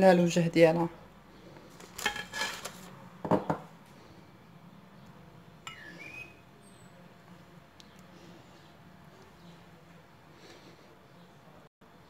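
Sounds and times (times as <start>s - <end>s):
brush clinking against glass bowl: 5.6s - 6.0s.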